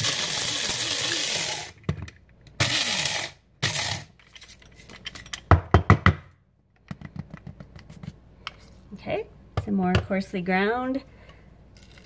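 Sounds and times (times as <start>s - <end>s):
coffee grinder motor whirring: 0.0s - 1.8s, 2.6s - 4.1s.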